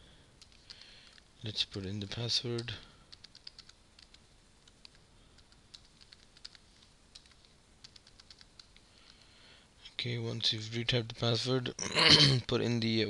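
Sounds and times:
computer keyboard keystrokes: 0.4s - 1.3s, 2.5s - 9.2s.

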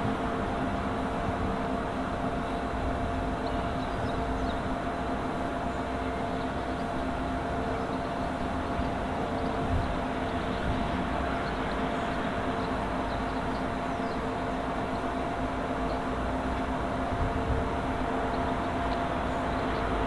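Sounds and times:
faint constant hum: 0.0s - 20.0s
steam locomotive rumble and hiss: 0.0s - 20.0s.

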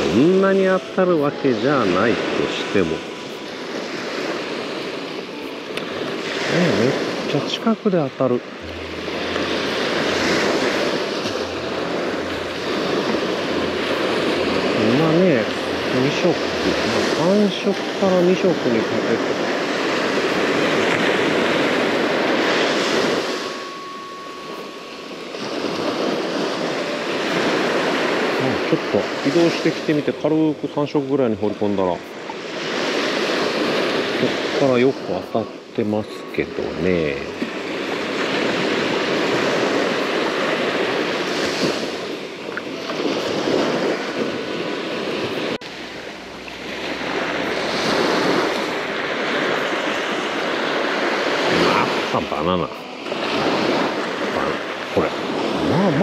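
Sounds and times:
surf breaking on beach: 0.0s - 56.0s
wind on microphone: 8.4s - 29.3s, 32.1s - 52.1s.

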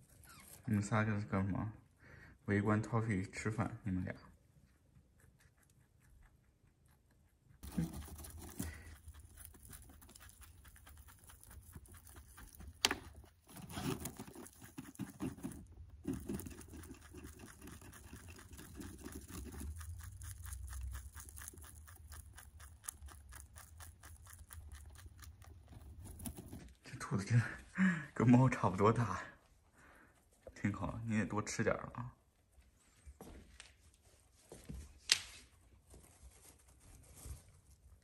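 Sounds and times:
rabbit chewing hay: 4.3s - 27.0s.

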